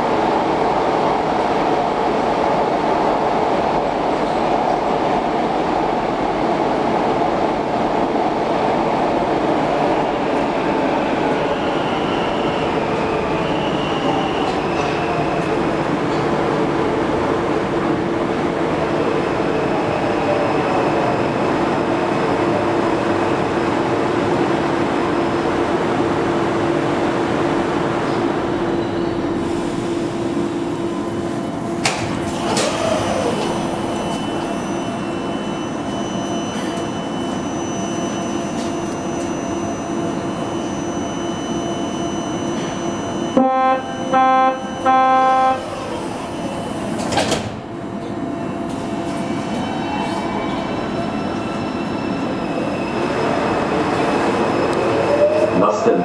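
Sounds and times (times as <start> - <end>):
metro train motor whine: 4.8 - 56.0
train doors opening clunk: 31.3 - 34.5, 45.7 - 50.2
door closing chime beeps: 33.4 - 46.7.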